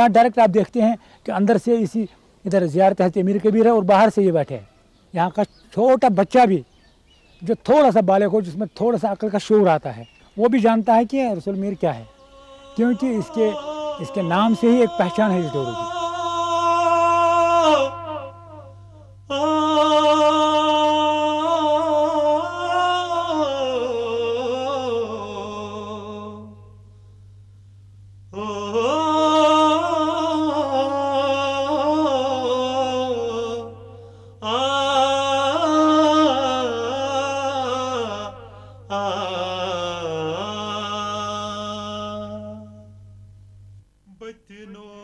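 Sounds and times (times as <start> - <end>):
steady low hum: 0.0 - 45.0
person singing slow song: 12.1 - 27.2, 28.2 - 43.4, 44.0 - 45.0.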